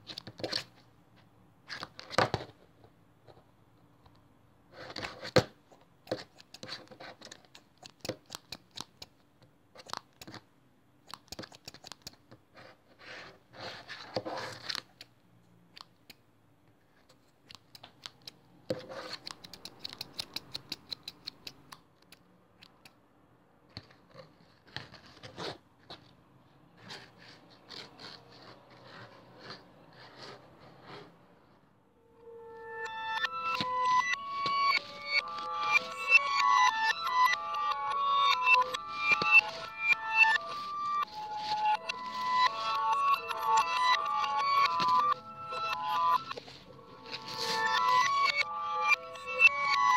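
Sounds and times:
scissors snipping: 6.1 - 9.2, 19.1 - 23.0
scratching: 26.7 - 31.6, 32.4 - 49.9.

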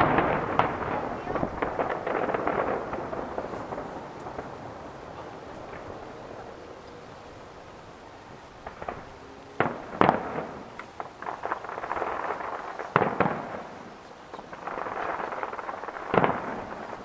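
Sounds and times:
firework crackling: 0.0 - 17.0
firework shells bursting: 0.0 - 17.0.

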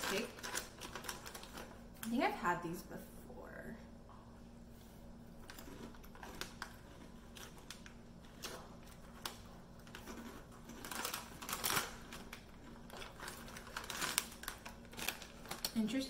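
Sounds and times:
plastic bag crinkling: 0.0 - 2.4, 5.4 - 16.0
crunching of chips being chewed: 5.4 - 15.8.

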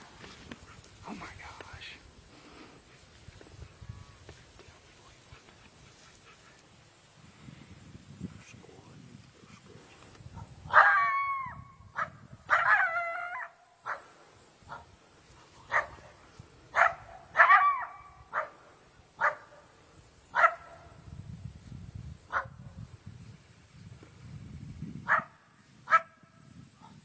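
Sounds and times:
coyote barking and howling: 10.4 - 14.1, 16.7 - 18.6.

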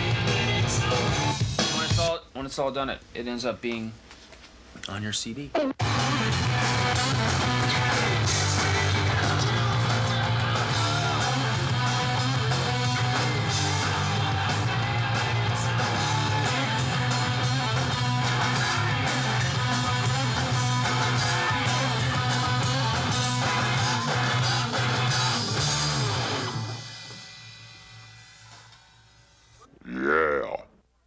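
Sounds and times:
electric guitar: 0.0 - 1.6, 5.6 - 27.3
bass guitar line: 0.0 - 2.0, 5.6 - 26.8.

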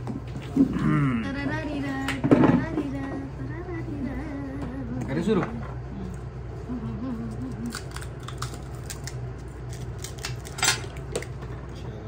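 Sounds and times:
steady low hum: 0.0 - 12.0
crisp shells cracking: 7.7 - 11.4.

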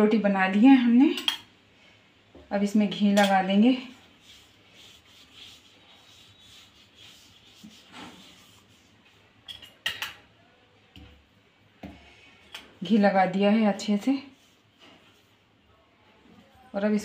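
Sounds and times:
hand rubbing dough: 3.4 - 9.5, 11.2 - 17.0.

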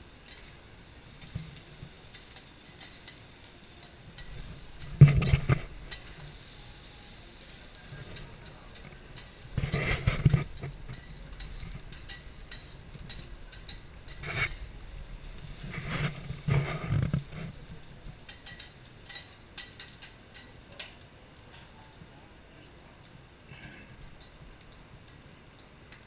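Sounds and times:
metal spatulas scraping griddle: 1.2 - 6.3, 7.8 - 20.5.

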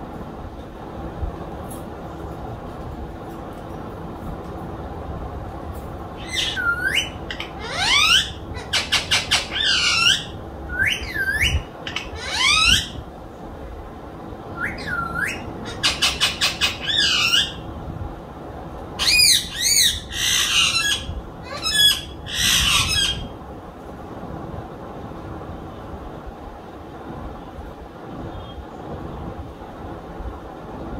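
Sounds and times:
parrot rattling chatter: 6.2 - 10.3
parrot screeching: 6.2 - 13.0, 14.6 - 17.6, 19.0 - 23.4
parrot squawking and whistling: 6.2 - 13.0, 14.6 - 17.6, 19.0 - 23.3.

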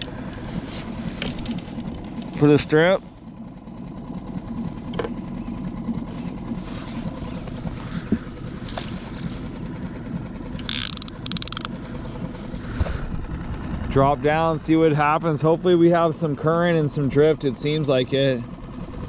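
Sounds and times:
water around boat: 0.0 - 19.0
short rapid rattle: 10.5 - 14.6.

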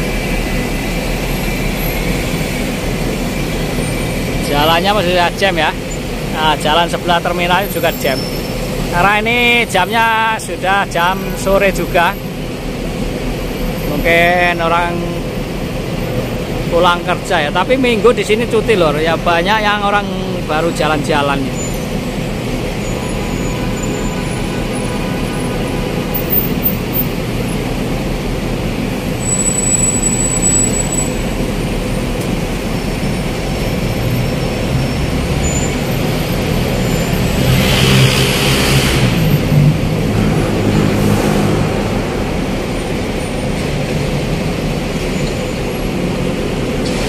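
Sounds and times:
traffic engine rumble: 0.0 - 47.0
nearby engine revving: 34.5 - 43.2.

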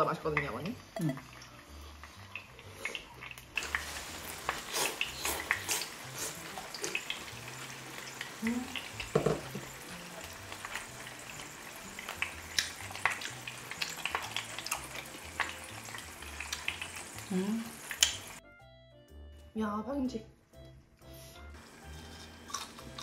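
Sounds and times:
quiet background music: 0.0 - 23.0
wet chewing and smacking: 12.1 - 17.0, 22.4 - 23.0.

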